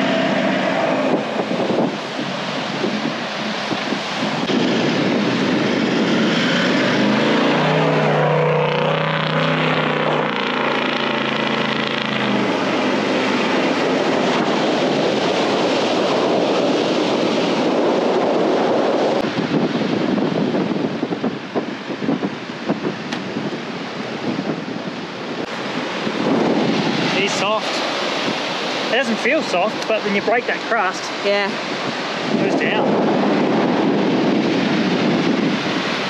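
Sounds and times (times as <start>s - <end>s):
steady rushing noise: 0.0s - 36.0s
tyres churning sand: 25.4s - 33.0s.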